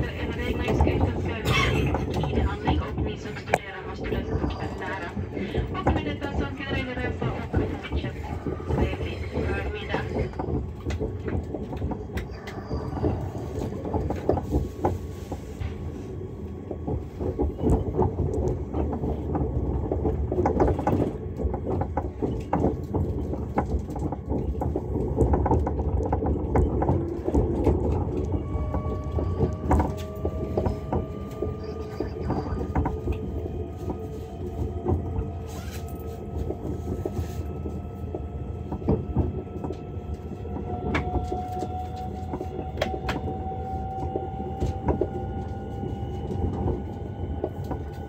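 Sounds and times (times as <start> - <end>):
train cabin rumble: 0.0 - 48.0
wheels clacking over rail joints: 16.6 - 48.0.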